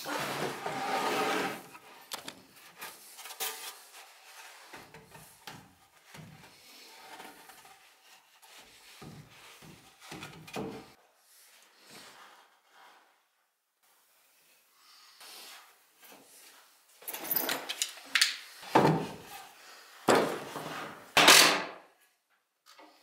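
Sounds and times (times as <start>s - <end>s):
wooden boards scraping: 0.0s - 1.8s.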